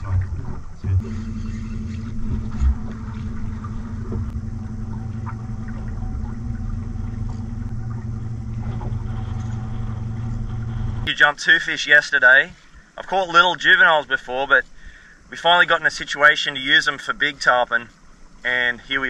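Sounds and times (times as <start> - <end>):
boat motor running: 0.0 - 11.1.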